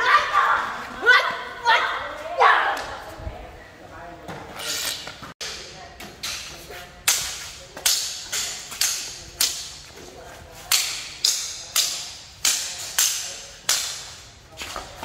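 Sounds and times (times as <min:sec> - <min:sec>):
swords clashing: 0:06.2 - 0:09.8, 0:10.7 - 0:14.2.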